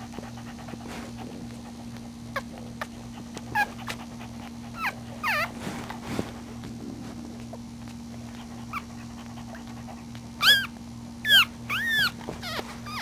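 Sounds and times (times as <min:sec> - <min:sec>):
puppy crying: 0:02.3 - 0:05.6, 0:08.6 - 0:09.8, 0:10.4 - 0:13.0
puppy whimpering: 0:02.3 - 0:06.0, 0:08.4 - 0:13.0.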